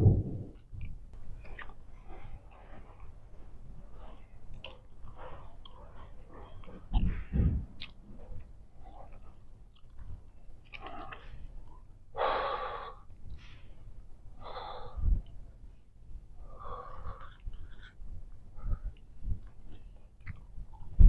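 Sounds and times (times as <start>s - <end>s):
woman breathing hard: 12.2s - 15.2s.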